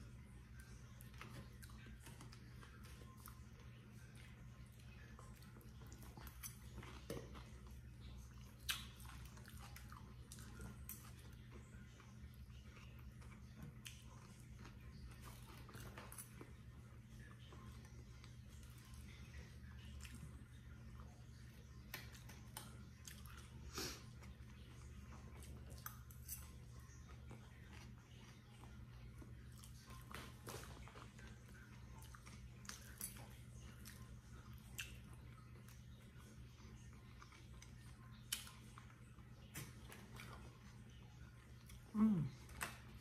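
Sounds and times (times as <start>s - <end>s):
low steady hum: 0.0s - 43.0s
person chewing: 0.2s - 43.0s
wet mouth sounds and clicks: 8.6s - 9.2s, 34.7s - 35.0s.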